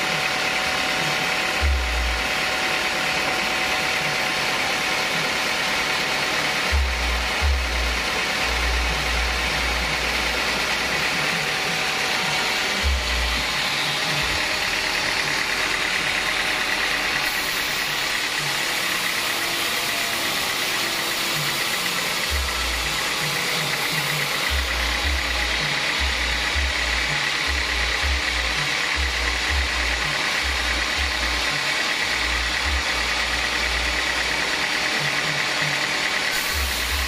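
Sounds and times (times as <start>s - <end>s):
band sawmill sawing log: 8.1s - 37.0s.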